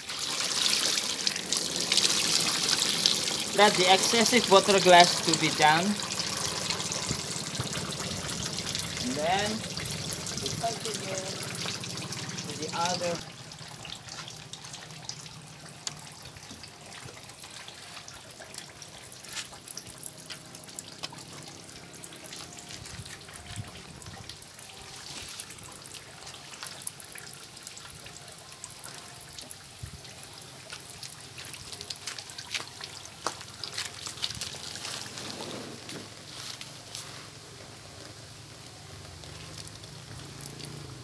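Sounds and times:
liquid trickling and dripping: 0:00.0 - 0:37.0, 0:37.6 - 0:41.0
wet fabric rustling: 0:33.6 - 0:37.4.

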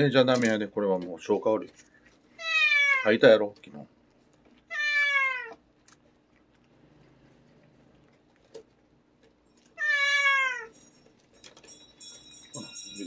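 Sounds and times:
cat meowing: 0:02.4 - 0:03.1, 0:04.7 - 0:05.6, 0:09.8 - 0:10.7.

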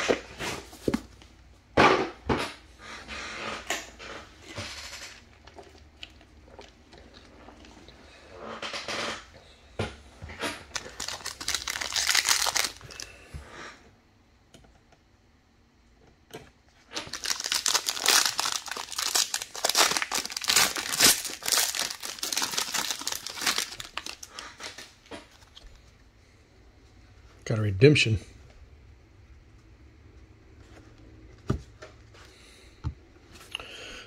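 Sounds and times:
foil wrapper crinkling: 0:10.7 - 0:13.1, 0:17.0 - 0:25.6.

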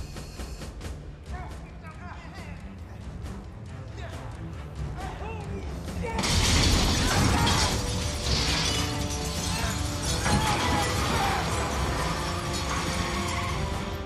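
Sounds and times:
film score music: 0:00.0 - 0:14.0
glass shattering: 0:06.2 - 0:14.0.

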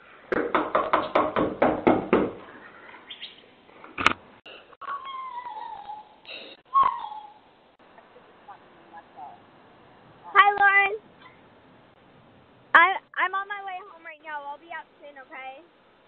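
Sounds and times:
rapid knocking on door: 0:00.3 - 0:02.4
high falling cries: 0:04.8 - 0:07.7.

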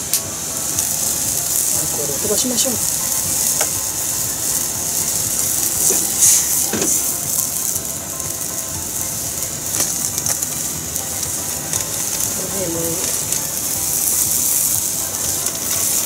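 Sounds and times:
liquid boiling with flames hissing: 0:00.0 - 0:16.0.

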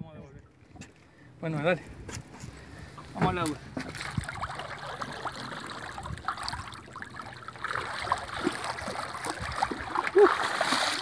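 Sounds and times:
river water trickling: 0:00.5 - 0:11.0
small splashes: 0:03.0 - 0:11.0.

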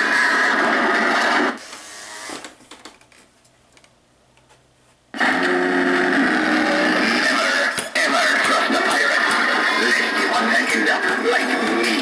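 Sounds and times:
animatronic sound track through speaker: 0:00.0 - 0:01.9, 0:05.1 - 0:12.0.

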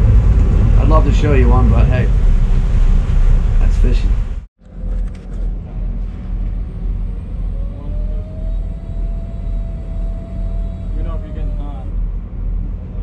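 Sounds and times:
wind noise: 0:00.0 - 0:04.4
boat engine rumble: 0:00.0 - 0:13.0
faint steady whine: 0:04.6 - 0:13.0.

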